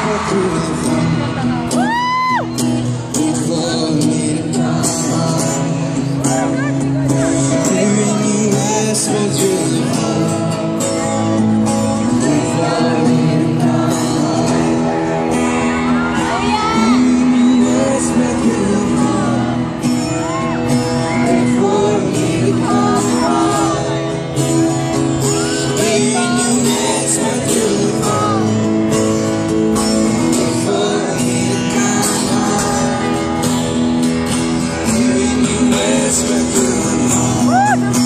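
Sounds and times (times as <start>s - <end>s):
acoustic guitar: 0.0s - 38.0s
audience voices: 0.0s - 38.0s
person singing: 11.9s - 24.1s, 25.2s - 28.7s, 29.8s - 33.7s, 34.3s - 38.0s.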